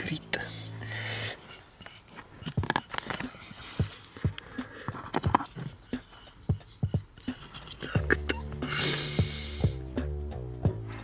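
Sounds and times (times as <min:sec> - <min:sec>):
plastic clicks and knocks: 0:02.5 - 0:03.3.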